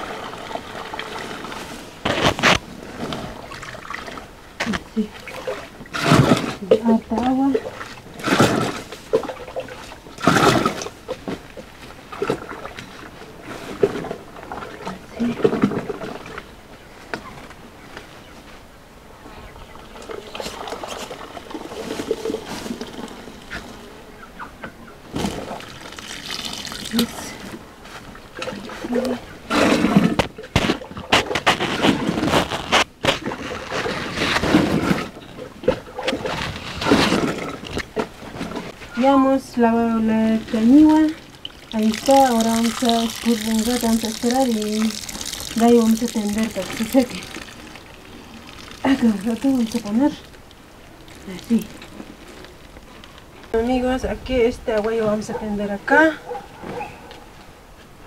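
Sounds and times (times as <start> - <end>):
water pouring and splashing: 0.0 - 16.4, 19.9 - 23.6, 25.2 - 38.8, 40.2 - 53.0
grain pouring into water: 25.6 - 27.3, 41.1 - 50.4
hand swishing grain in water: 41.2 - 50.0.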